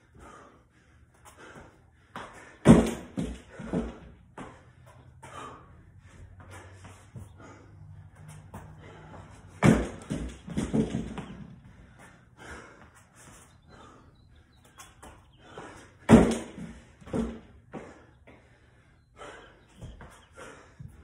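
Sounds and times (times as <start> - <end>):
feet landing on wooden box: 2.2 - 4.6, 9.5 - 11.6, 16.0 - 18.0
heavy thuds on floor: 2.6 - 4.1, 9.6 - 11.4, 16.1 - 17.4.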